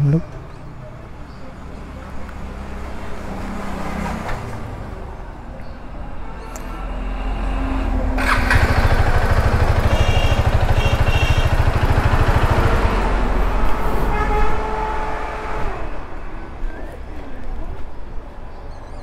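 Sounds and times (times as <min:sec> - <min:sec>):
motorcycle engine low rumble: 0:08.1 - 0:14.8.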